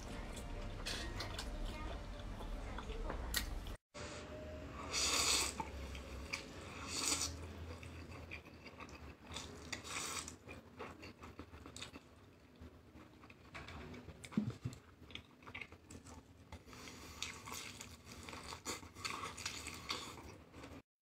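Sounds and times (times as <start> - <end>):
person slurping noodles: 4.9 - 5.7, 6.6 - 7.4
wet chewing: 14.2 - 20.8.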